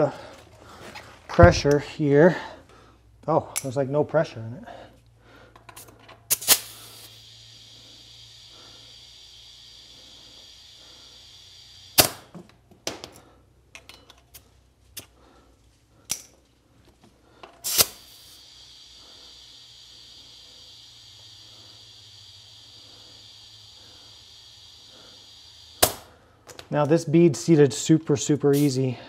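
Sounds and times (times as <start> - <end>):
compressed air hissing: 5.3 - 12.7, 17.2 - 26.4, 28.5 - 29.0
air chuck popping off: 5.6 - 13.2, 17.4 - 26.7
burst of air: 6.3 - 12.4, 17.6 - 26.4.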